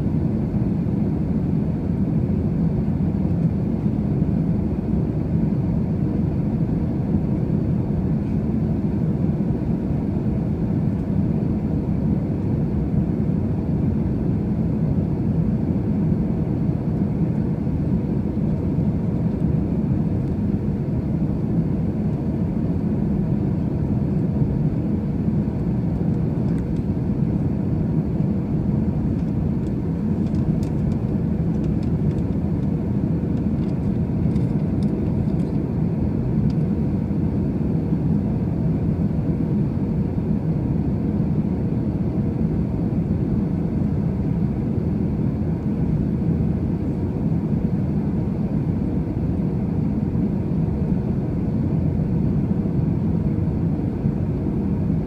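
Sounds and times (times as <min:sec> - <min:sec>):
airliner engines rumbling: 0:00.0 - 0:55.0.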